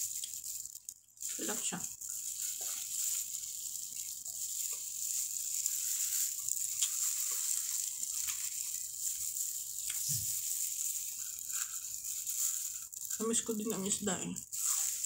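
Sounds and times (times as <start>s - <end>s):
steady hiss: 0.0s - 15.0s
soft chewing: 6.4s - 10.4s.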